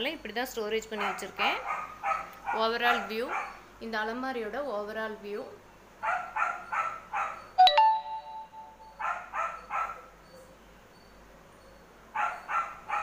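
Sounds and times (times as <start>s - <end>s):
dog barking: 1.0s - 3.6s, 6.0s - 7.5s, 9.0s - 10.1s, 12.2s - 13.0s.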